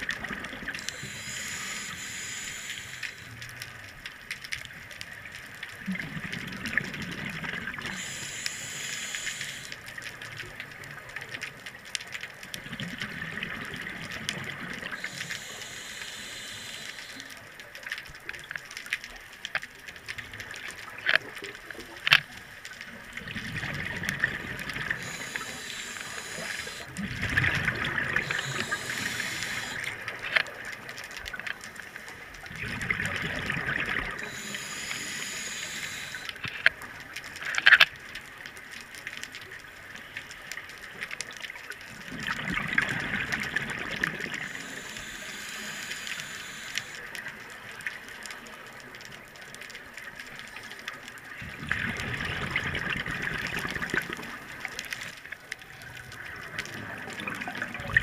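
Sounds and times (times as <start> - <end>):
exhaled bubbles gurgling: 0.0 - 3.6, 5.2 - 11.6, 12.3 - 18.5, 22.7 - 37.3, 41.3 - 48.4, 50.4 - 58.0
regulator inhale hissing: 0.7 - 3.4, 7.8 - 9.8, 14.9 - 17.4, 24.8 - 26.9, 28.2 - 30.1, 34.1 - 36.4, 44.2 - 47.2.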